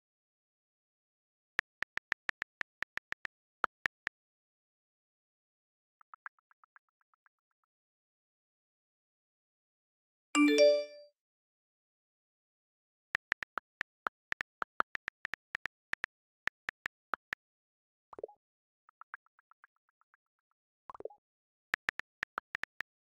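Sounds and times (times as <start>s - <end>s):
phone keyboard clicks: 1.6s - 4.0s, 13.2s - 17.4s.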